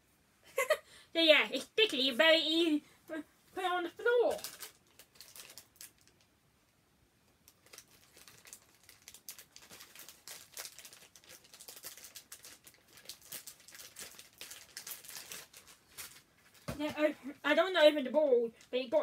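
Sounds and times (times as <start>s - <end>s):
plastic packaging crinkling: 4.3s - 6.3s, 7.4s - 16.8s.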